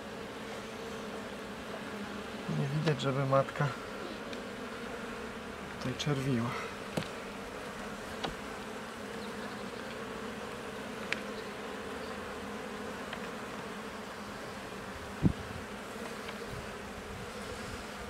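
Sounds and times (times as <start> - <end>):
bees humming loudly: 0.0 - 18.0.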